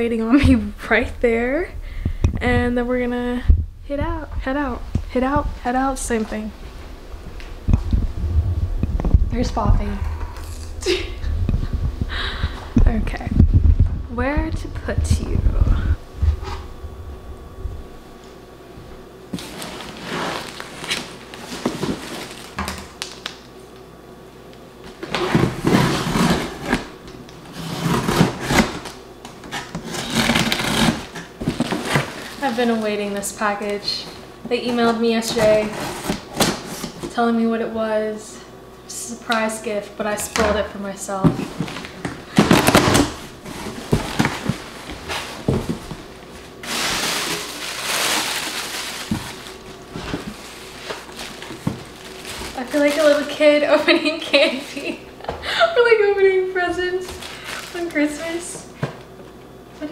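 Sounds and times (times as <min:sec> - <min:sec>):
tissue paper rustling: 0:19.4 - 0:22.6, 0:41.4 - 0:54.7
packing tape cut and torn: 0:27.5 - 0:32.5, 0:41.8 - 0:44.6.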